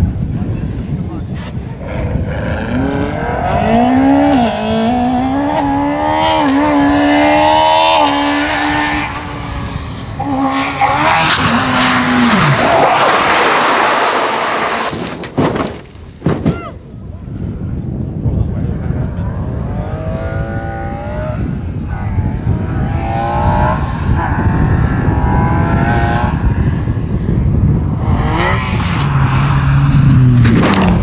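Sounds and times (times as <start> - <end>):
rally car engine revving: 1.2 - 15.8, 18.6 - 31.0
tyre noise rushing: 10.0 - 16.9.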